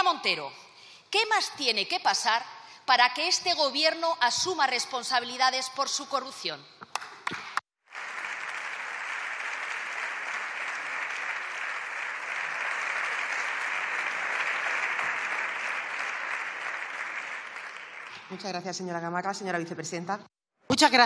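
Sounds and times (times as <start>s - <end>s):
crowd clapping: 7.0s - 18.6s.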